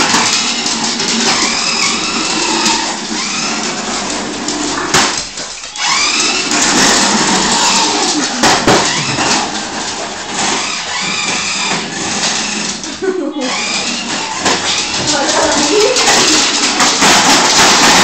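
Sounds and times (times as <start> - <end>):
toy car electric motor whirring: 0.0 - 18.0.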